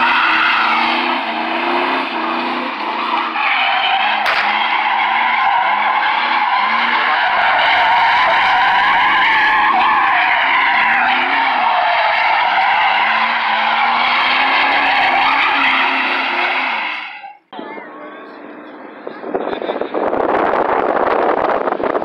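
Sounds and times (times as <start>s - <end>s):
high-revving engine: 0.0s - 17.0s
tyres squealing on asphalt: 0.0s - 22.0s.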